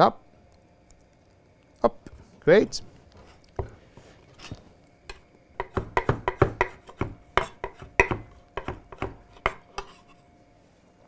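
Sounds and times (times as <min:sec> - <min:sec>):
knife chopping on cutting board: 0:03.6 - 0:03.8, 0:05.1 - 0:10.0.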